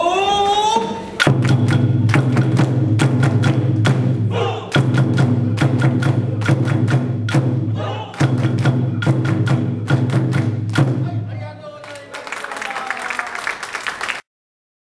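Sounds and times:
taiko drum strikes: 1.2 - 11.4.

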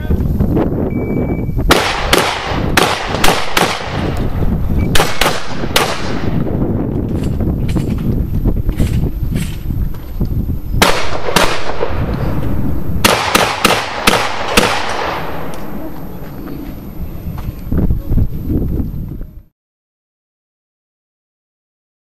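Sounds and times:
shotgun shots with echo: 1.7 - 4.1, 4.9 - 6.4, 10.8 - 12.4, 13.0 - 15.8.

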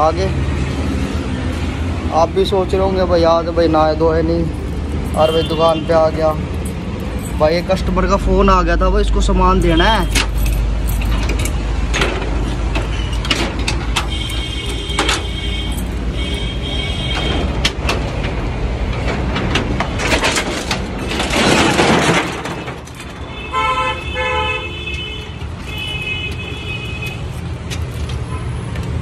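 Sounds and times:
rolling shutter rattling: 2.2 - 8.5, 9.2 - 28.3
vehicle horns tooting: 5.1 - 6.3, 14.0 - 17.6, 23.2 - 27.4.

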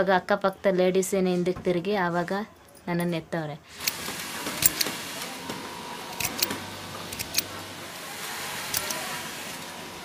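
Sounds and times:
factory machinery humming: 3.8 - 10.0
sharp metallic clicks: 6.2 - 6.5, 7.1 - 7.5.

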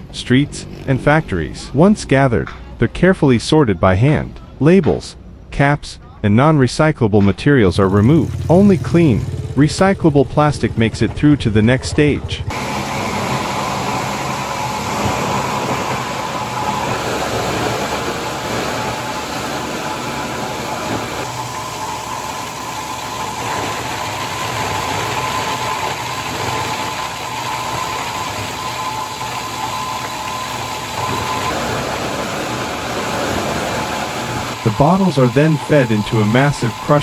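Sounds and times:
machine drone with whine: 7.8 - 37.0.

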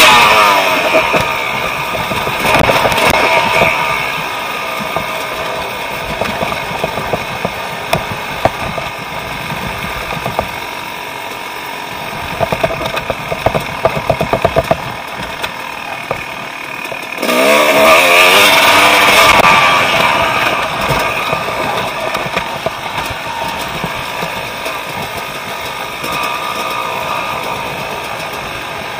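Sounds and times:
sharp knocks and pops: 0.0 - 10.7, 12.2 - 16.4, 18.8 - 26.4
dirt bike engine: 0.0 - 28.9.

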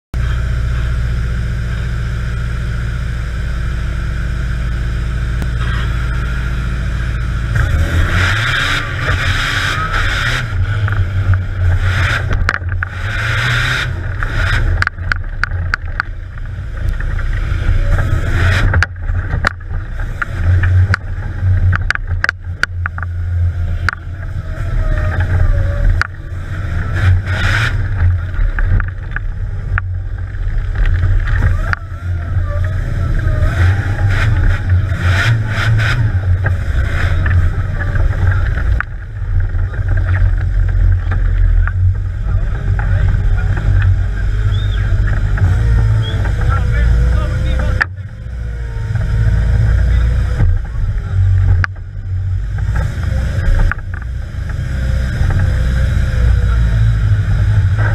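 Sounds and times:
vehicle engine idling and revving: 0.1 - 57.9
chassis knocks and rattles: 14.0 - 24.3, 24.9 - 31.9.

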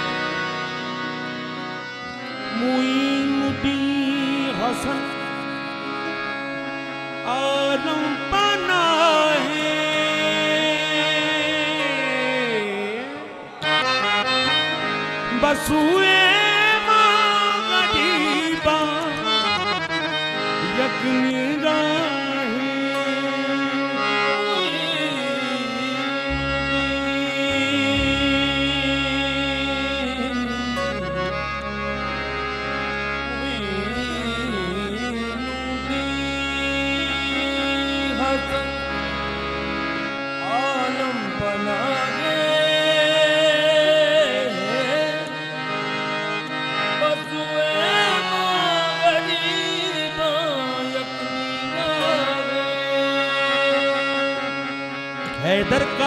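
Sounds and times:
harmonium melody: 0.0 - 56.0
tabla: 0.0 - 56.0.

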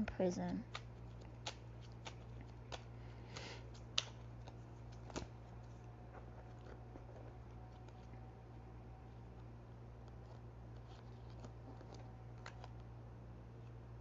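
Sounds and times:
cards rustling: 0.0 - 8.2, 9.1 - 12.9
low steady hum: 0.0 - 14.0
sharp card clicks: 0.7 - 5.3.

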